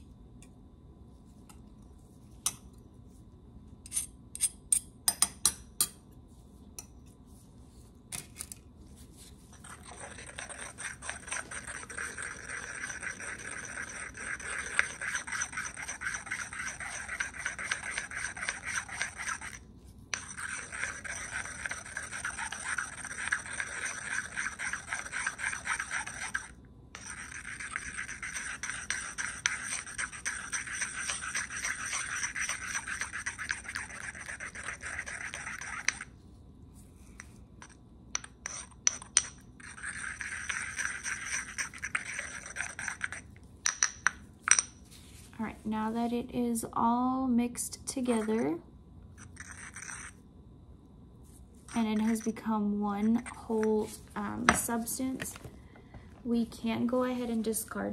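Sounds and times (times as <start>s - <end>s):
pestle scraping a mortar: 9.6s - 36.1s, 38.4s - 43.8s, 49.3s - 50.1s.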